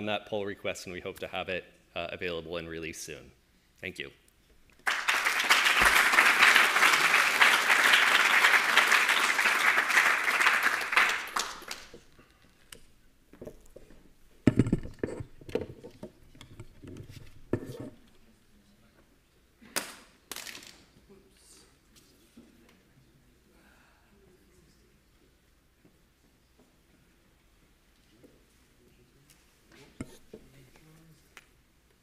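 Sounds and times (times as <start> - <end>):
audience applauding: 4.8 - 12.1
knocks and clunks: 14.4 - 17.9.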